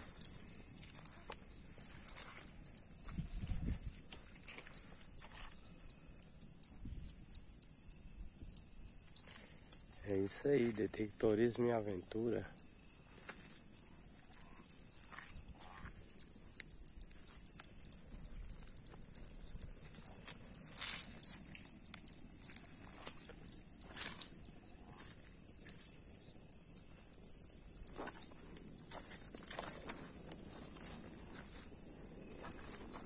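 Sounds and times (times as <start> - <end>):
footsteps through dry brush: 0.0 - 5.7, 19.7 - 21.8, 22.4 - 26.0, 27.9 - 33.0
insects trilling: 0.0 - 33.0.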